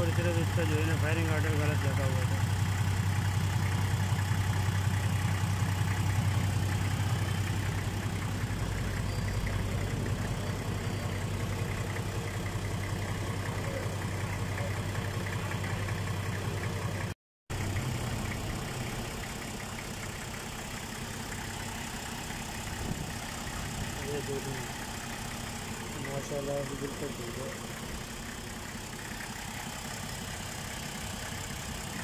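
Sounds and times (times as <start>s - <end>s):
diesel engine idling: 0.0s - 32.0s.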